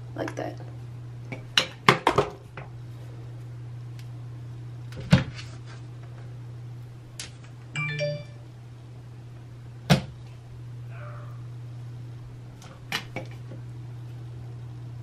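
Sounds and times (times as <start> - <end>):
steady low hum: 0.0 - 15.0
chime-like ding: 7.8 - 8.4.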